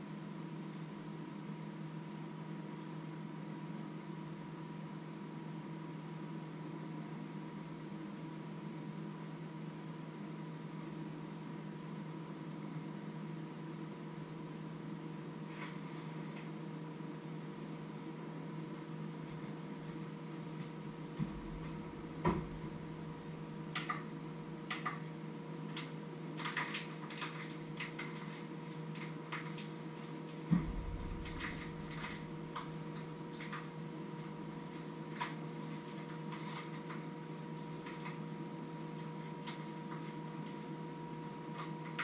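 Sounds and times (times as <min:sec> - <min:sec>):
steady low hum: 0:09.8 - 0:42.0
heavy thumps: 0:21.2 - 0:23.0, 0:30.5 - 0:32.8.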